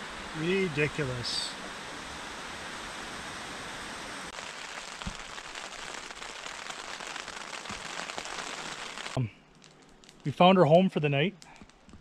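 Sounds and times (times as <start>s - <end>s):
heavy rain pouring: 0.0s - 9.3s
rain pattering on tent fabric: 0.0s - 12.0s.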